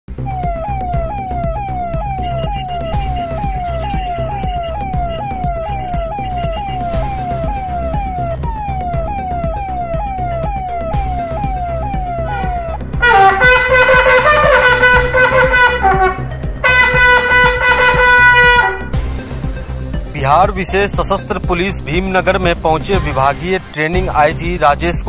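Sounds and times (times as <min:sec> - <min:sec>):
electronic police siren: 0:00.1 - 0:18.9.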